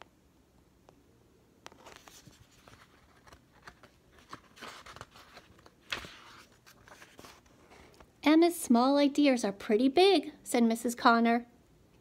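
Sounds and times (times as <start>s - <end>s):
book pages rustling: 1.7s - 8.1s.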